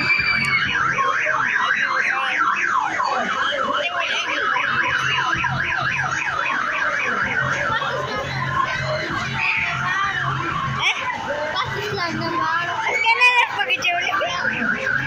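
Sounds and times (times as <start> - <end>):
electronic siren warbling: 0.0 - 11.2, 12.3 - 15.0.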